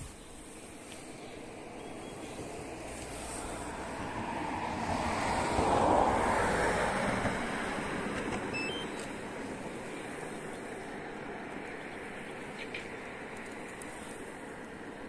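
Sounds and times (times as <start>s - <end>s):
passing vehicle rushing: 1.5s - 12.1s.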